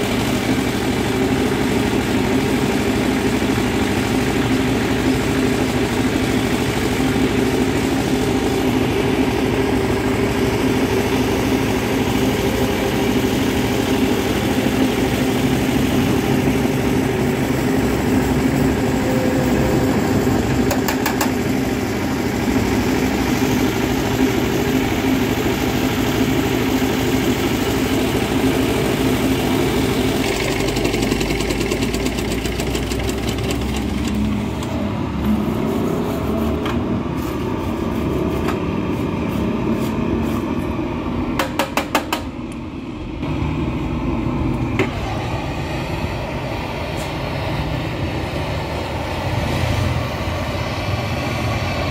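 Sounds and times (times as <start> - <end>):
engine idling: 0.0 - 39.0.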